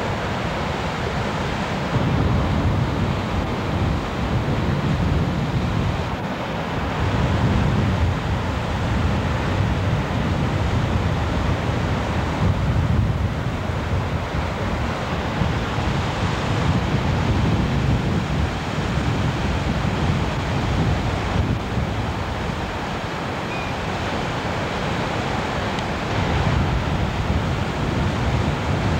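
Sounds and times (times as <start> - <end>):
ocean waves breaking: 0.0 - 28.9.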